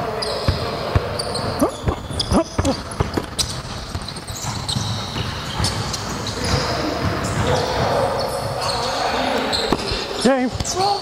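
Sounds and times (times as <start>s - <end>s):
sneakers squeaking: 0.0s - 11.0s
basketball bouncing on hardwood floor: 0.4s - 8.6s.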